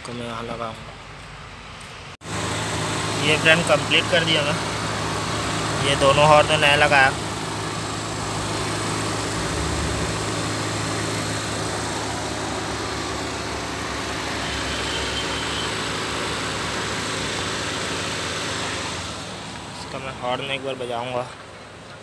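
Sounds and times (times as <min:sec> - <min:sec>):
engine idling: 0:02.2 - 0:22.0.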